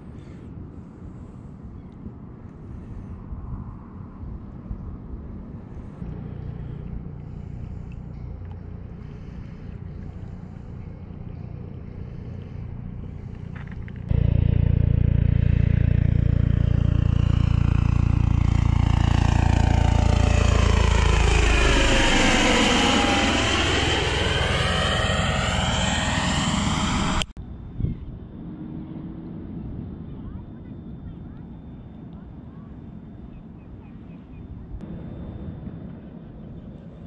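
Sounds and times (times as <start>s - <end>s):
aircraft engine drone: 0.0s - 37.0s
hollow whooshing sweep: 14.1s - 27.3s.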